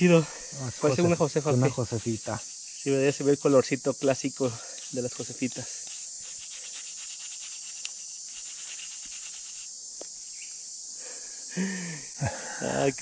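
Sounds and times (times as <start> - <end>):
insects chirring: 0.0 - 13.0
faint ticks: 7.7 - 8.0.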